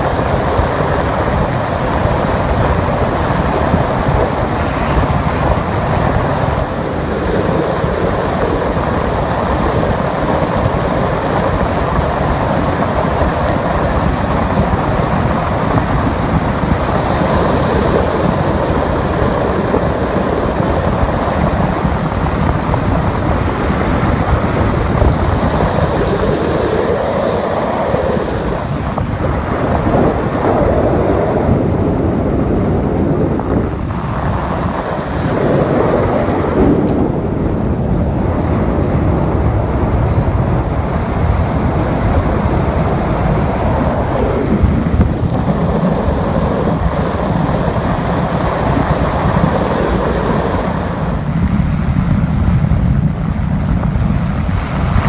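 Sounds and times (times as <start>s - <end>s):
wind and road noise: 0.0s - 55.0s.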